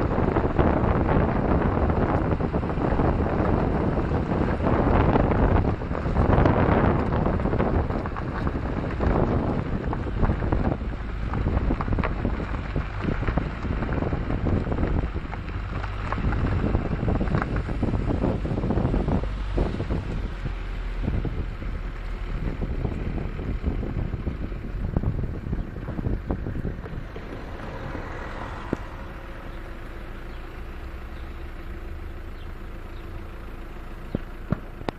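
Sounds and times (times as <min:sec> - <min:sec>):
wind buffeting microphone: 0:00.0 - 0:34.9
train rumbling: 0:02.4 - 0:30.4.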